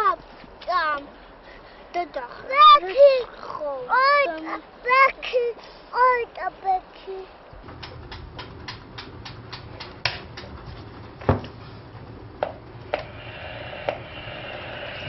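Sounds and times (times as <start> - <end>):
faint hiss: 0.0 - 7.8
heavier knocks: 11.2 - 11.6.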